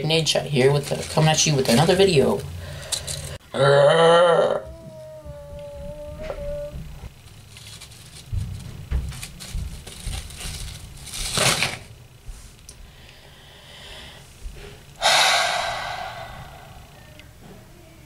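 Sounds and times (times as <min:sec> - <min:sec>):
short sharp breath: 0:15.0 - 0:17.0
loud breathy sigh: 0:15.0 - 0:17.2.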